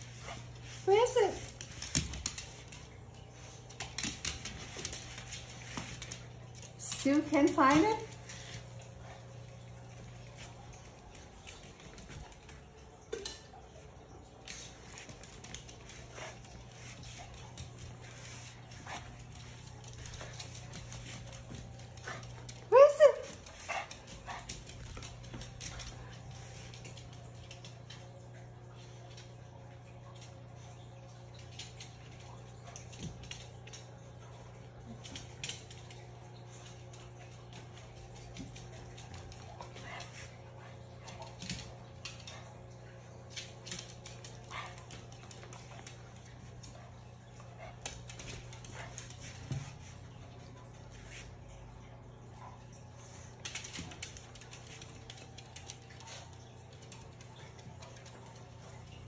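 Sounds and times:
dog claws clicking on hardwood floor: 0.0 - 8.6, 14.4 - 28.2, 43.2 - 50.0, 53.3 - 58.6
low steady hum: 0.0 - 59.0.

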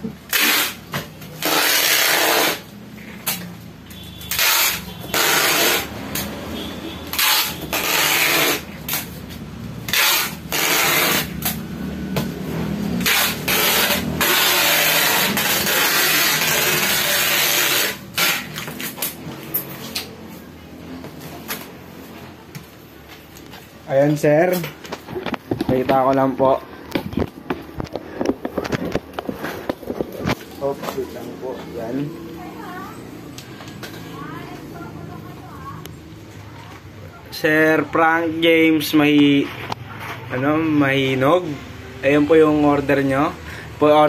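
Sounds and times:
packing tape pulled off roll: 0.3 - 3.5, 4.3 - 6.3, 7.1 - 9.2, 9.9 - 11.6, 13.0 - 20.1.

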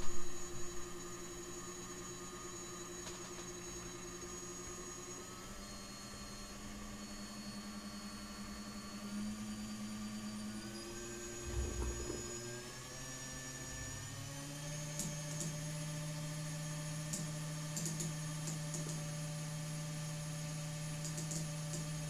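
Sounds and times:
drone motor whining: 0.0 - 12.7
brief low rumble: 11.3 - 12.5.

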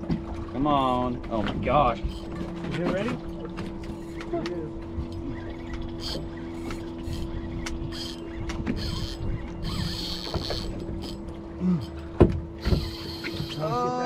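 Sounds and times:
steady low hum: 0.0 - 14.0
fishing reel clicking: 5.3 - 11.2, 12.6 - 13.7.

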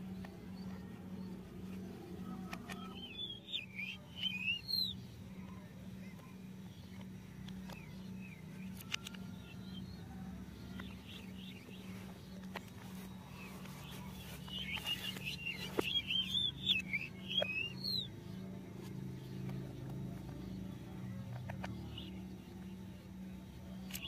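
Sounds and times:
birds chirping: 0.0 - 24.0
steady low hum: 0.0 - 24.0
plastic toy parts clicking: 8.7 - 9.3.

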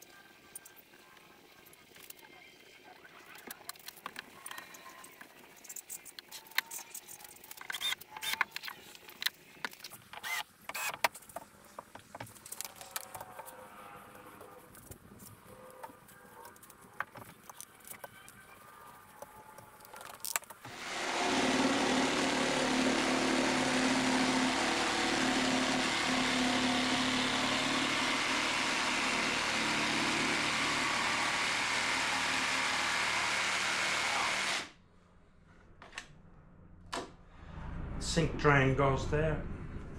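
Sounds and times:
cordless power tool running: 20.7 - 34.8.

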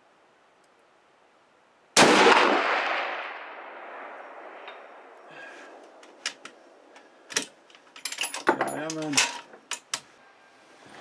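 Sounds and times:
rifle shot echoing: 2.0 - 5.2.

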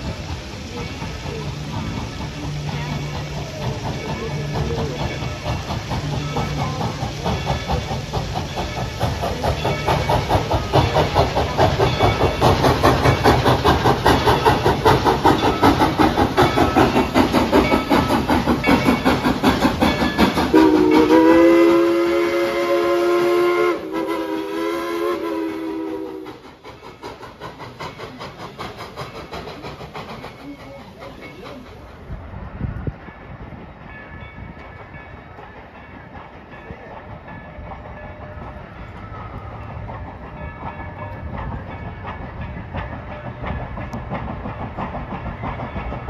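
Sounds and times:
steam locomotive chuffing: 0.0 - 46.0
train chime whistle: 20.4 - 26.4.

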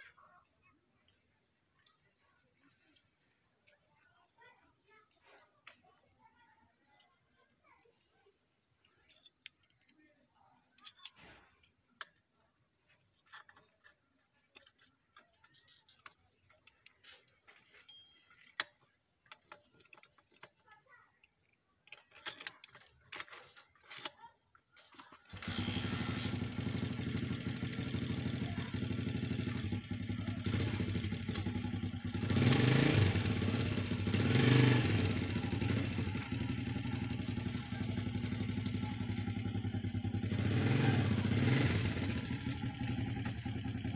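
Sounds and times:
metal hand tools clicking: 21.9 - 24.2
motorcycle engine running: 25.3 - 43.9.

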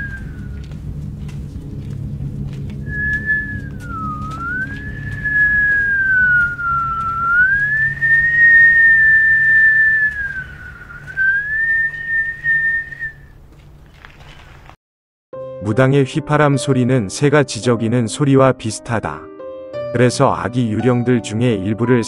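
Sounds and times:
man whistling long note: 0.0 - 0.8, 2.8 - 13.3.

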